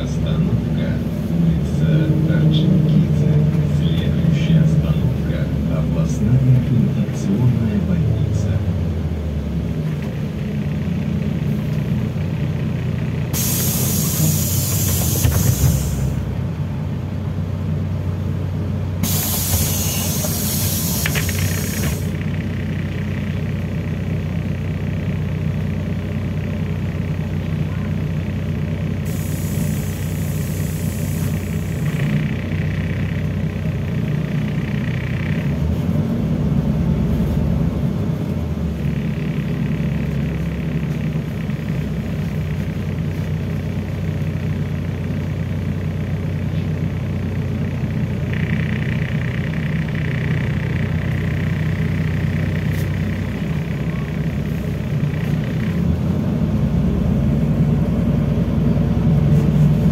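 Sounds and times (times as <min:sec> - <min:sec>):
bus engine droning: 0:00.0 - 0:59.9
compressed air hissing: 0:13.4 - 0:16.2, 0:19.0 - 0:22.2, 0:29.1 - 0:31.8.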